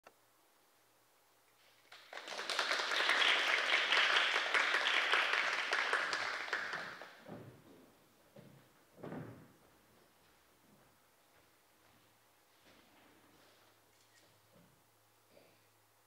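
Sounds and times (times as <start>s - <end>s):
small audience applauding: 1.7s - 7.3s.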